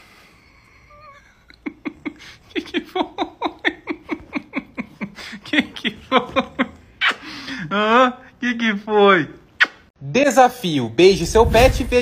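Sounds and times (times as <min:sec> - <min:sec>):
man laughing: 0:01.4 - 0:08.3.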